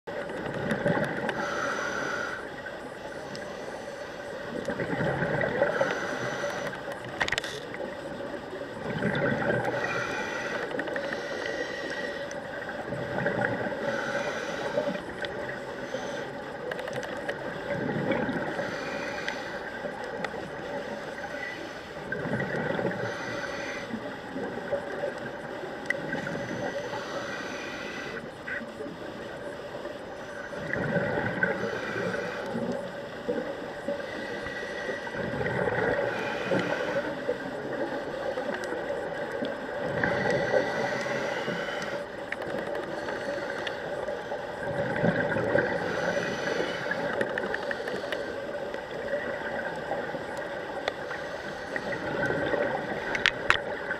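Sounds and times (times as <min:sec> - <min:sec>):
faint steady hum: 0:00.1 - 0:53.9
diver exhaling bubbles underwater: 0:04.7 - 0:05.8, 0:08.8 - 0:09.9, 0:30.6 - 0:31.6, 0:44.6 - 0:47.2.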